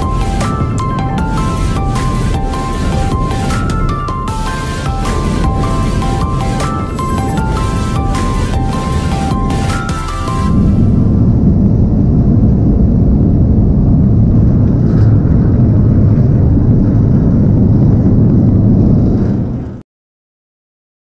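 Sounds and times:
low rumble of ship deck: 0.0s - 19.8s.

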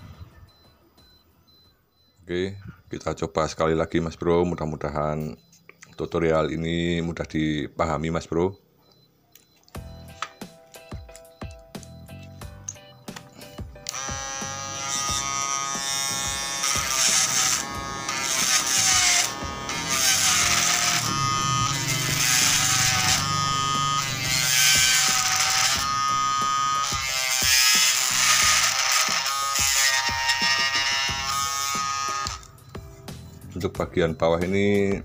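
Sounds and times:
small motor whining: 13.9s - 32.5s.

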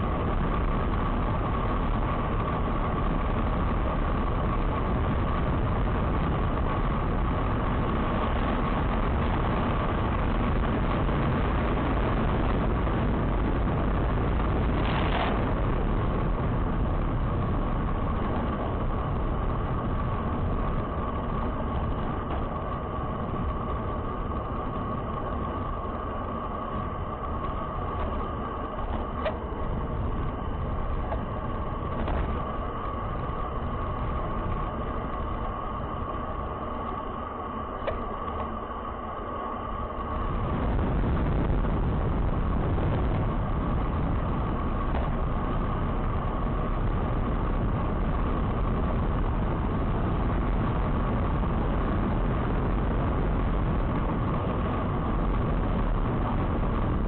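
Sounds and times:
vehicle engine and road noise: 0.0s - 57.0s.

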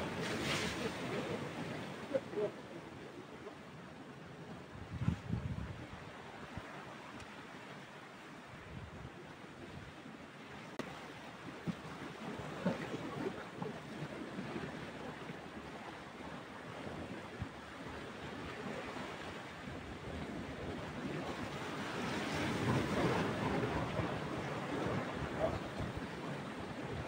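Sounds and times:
surf breaking on rocks: 0.0s - 2.5s
wind: 0.0s - 27.0s.

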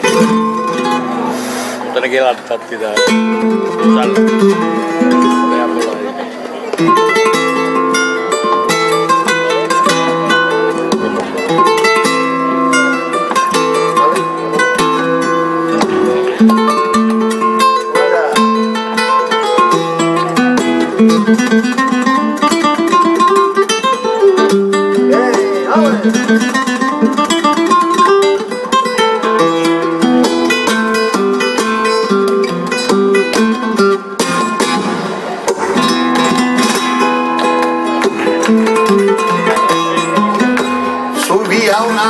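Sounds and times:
flamenco guitar playing: 0.0s - 42.0s
rhythmic hand-clapping: 33.2s - 41.6s.

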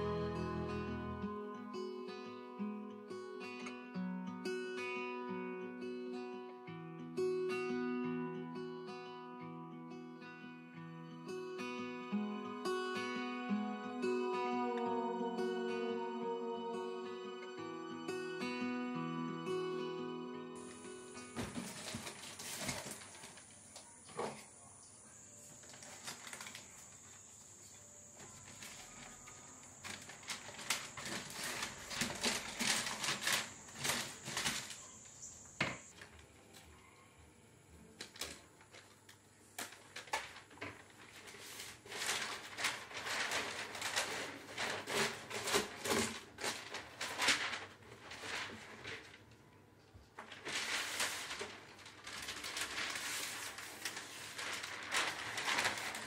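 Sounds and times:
wrapping paper rustling and crinkling: 20.6s - 36.6s, 37.9s - 56.0s.

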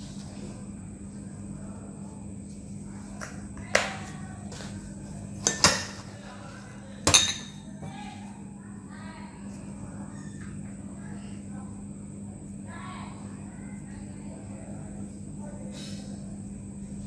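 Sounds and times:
glass bowls clinking on metal tray: 7.1s - 7.9s.

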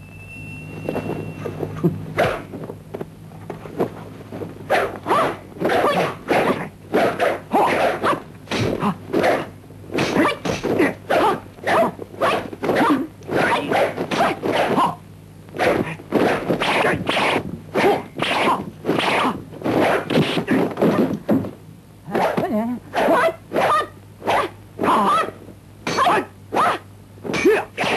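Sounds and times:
fighters shouting: 5.1s - 15.0s, 24.8s - 25.3s, 25.9s - 26.8s, 27.4s - 27.9s
sword whooshing swings: 15.6s - 21.1s.

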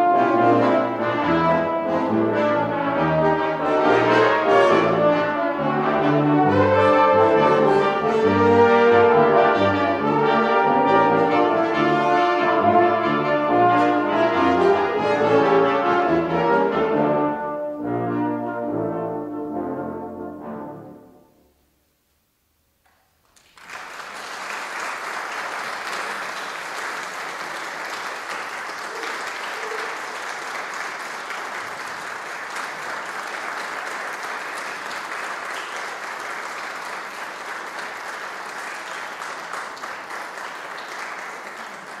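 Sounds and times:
audience applauding: 23.2s - 42.0s.

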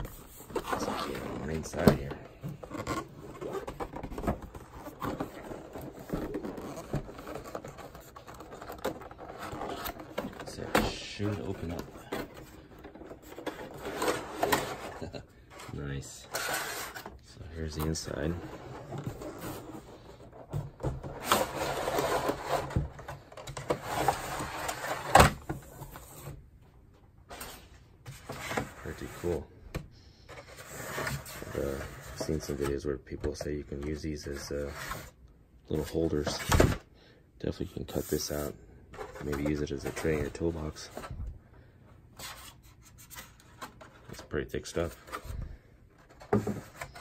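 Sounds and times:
cardboard scraping and rustling: 0.0s - 26.4s, 30.3s - 36.8s, 37.8s - 41.2s.

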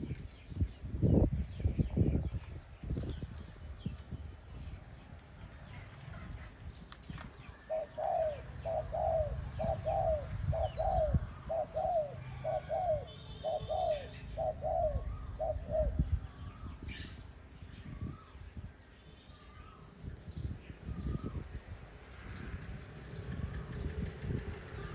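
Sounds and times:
small birds chirping: 0.0s - 24.9s
dove cooing: 7.6s - 16.3s.

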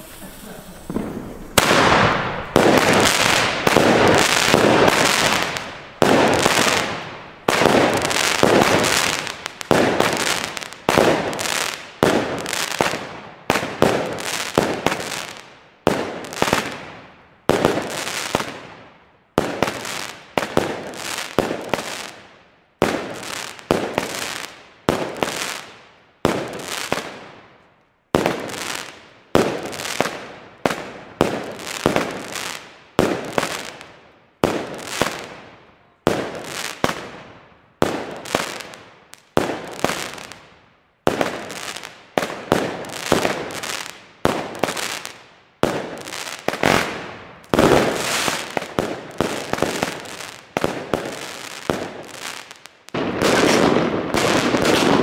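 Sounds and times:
trailing hiss: 0.0s - 2.6s
fireworks battery bangs: 0.0s - 11.4s.

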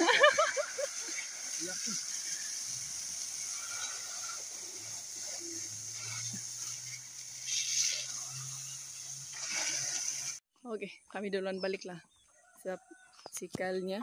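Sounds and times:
water hissing and spraying from pipe: 0.0s - 10.4s.

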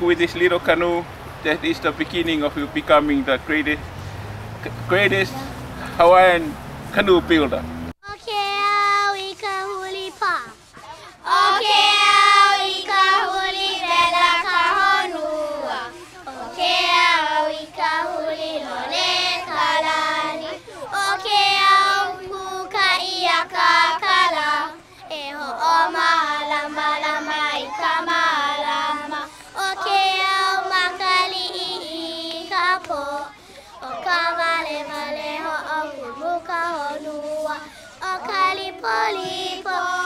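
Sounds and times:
children singing: 11.2s - 40.0s.

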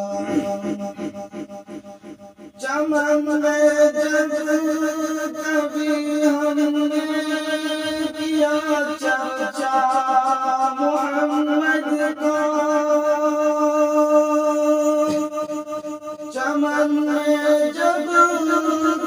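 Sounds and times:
layered voices humming: 0.0s - 4.6s.

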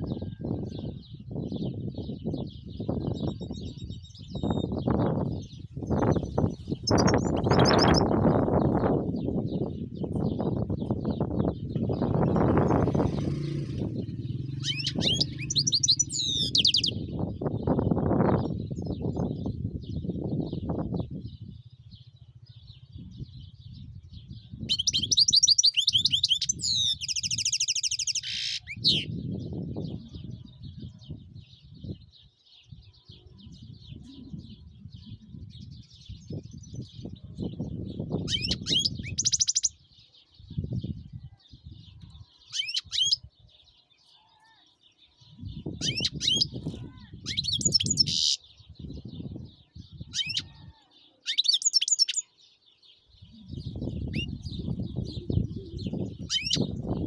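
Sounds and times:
goldfinch twittering trills: 5.9s - 8.2s, 11.8s - 17.0s, 38.3s - 39.8s, 56.1s - 56.8s.

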